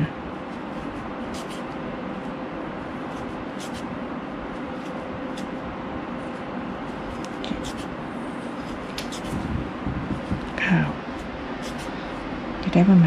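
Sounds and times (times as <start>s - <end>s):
background hum and hiss: 0.0s - 13.0s.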